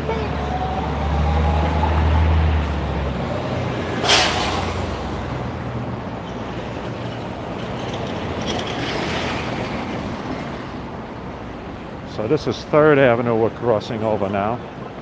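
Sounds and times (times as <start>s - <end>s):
street traffic engines: 0.0s - 15.0s
bus air brakes hissing: 4.0s - 5.2s.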